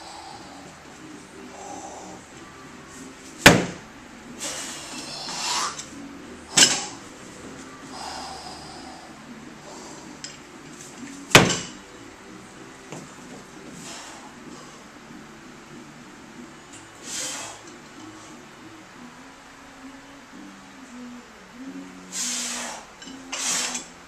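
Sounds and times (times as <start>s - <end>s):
heavy breathing: 0.0s - 2.3s, 4.3s - 5.8s, 7.8s - 10.4s, 13.6s - 15.0s, 17.0s - 18.4s, 22.1s - 23.9s.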